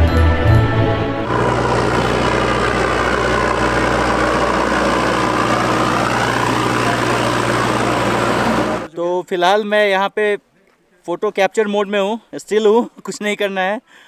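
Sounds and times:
diesel engine of passing digger: 1.3 - 8.9.

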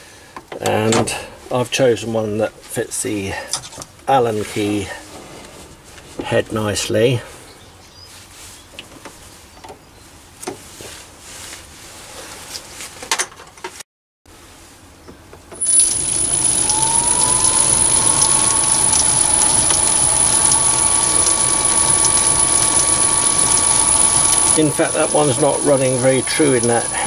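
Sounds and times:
lathe motor whine: 15.6 - 27.0.

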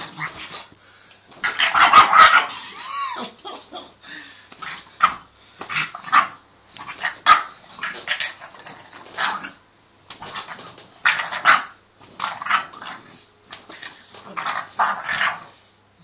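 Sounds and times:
puppy barking: 1.5 - 2.5.

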